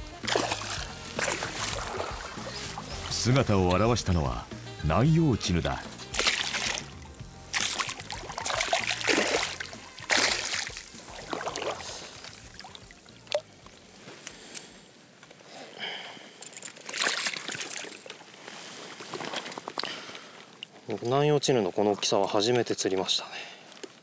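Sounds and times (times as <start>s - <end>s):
fish thrashing in splashing water: 0.2s - 3.1s, 6.1s - 13.4s, 16.5s - 18.4s.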